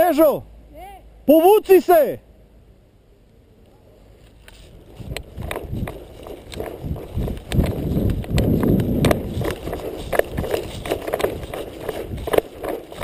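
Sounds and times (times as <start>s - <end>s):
dry grass rustling: 4.1s - 13.0s
hurried footsteps in dry grass: 4.5s - 13.0s
irregular thuds: 5.0s - 13.0s
sharp clicks: 5.1s - 13.0s.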